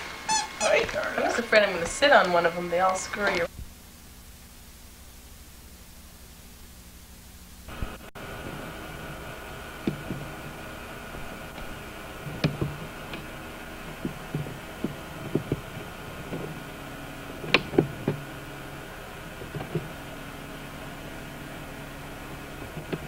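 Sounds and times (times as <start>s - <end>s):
steady background hum: 0.0s - 23.0s
knocks and clicks: 9.8s - 10.6s, 11.5s - 16.6s, 17.4s - 18.3s, 19.4s - 20.0s, 22.6s - 23.0s.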